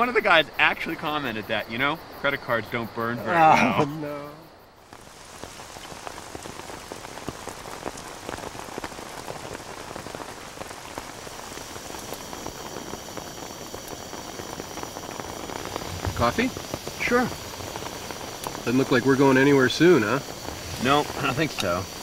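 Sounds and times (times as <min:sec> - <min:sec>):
rain pattering: 0:04.8 - 0:22.0.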